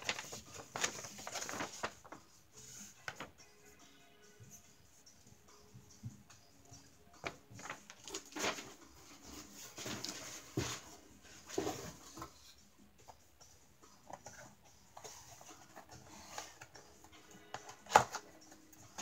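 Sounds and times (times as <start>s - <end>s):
cardboard boxes handled: 0.0s - 2.1s, 7.2s - 12.6s.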